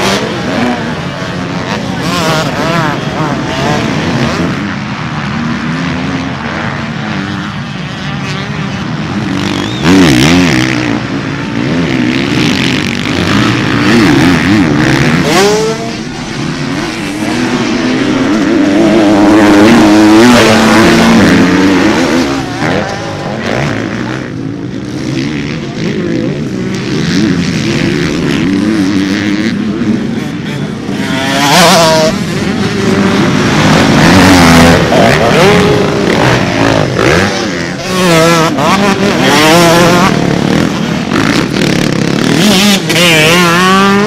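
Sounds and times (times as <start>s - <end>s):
motocross bike engines revving: 0.0s - 44.0s.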